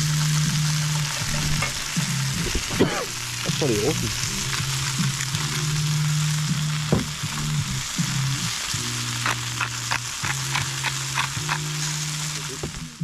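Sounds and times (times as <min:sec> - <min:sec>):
fish sizzling in oil: 0:00.0 - 0:13.0
seasoning grinder clicks: 0:09.2 - 0:11.7.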